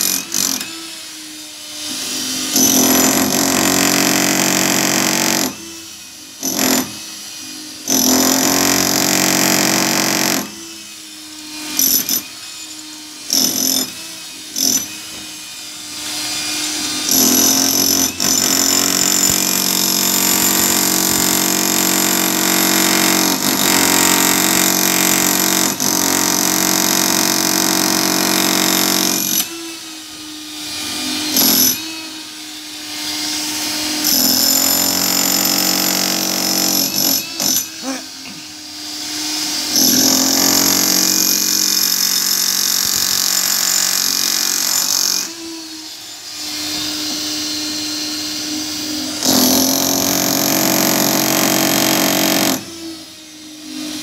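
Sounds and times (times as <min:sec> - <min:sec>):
demolition hammer chiselling concrete: 0:00.0 - 0:10.8, 0:11.4 - 0:12.4, 0:13.2 - 0:15.4, 0:16.0 - 0:29.7, 0:30.6 - 0:32.2, 0:32.9 - 0:45.7, 0:46.4 - 0:53.0.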